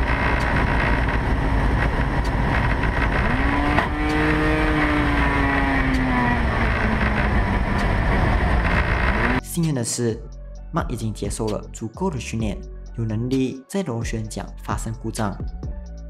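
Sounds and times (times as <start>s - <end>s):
light aircraft engine: 0.0s - 9.4s
rising and falling whining tone: 0.0s - 9.4s
wind noise: 0.0s - 9.4s.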